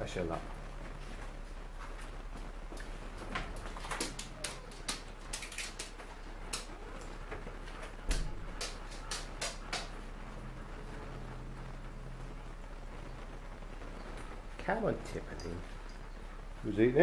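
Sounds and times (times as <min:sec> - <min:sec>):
steady low hum: 0:00.0 - 0:17.0
kittens chewing and tapping bowls: 0:02.7 - 0:10.1.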